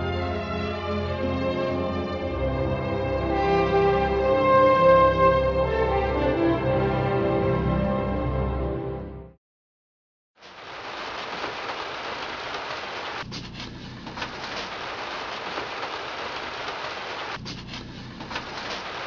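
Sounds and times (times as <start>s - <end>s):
music: 0.0s - 9.4s
wood fire crackling and hissing: 10.4s - 19.0s.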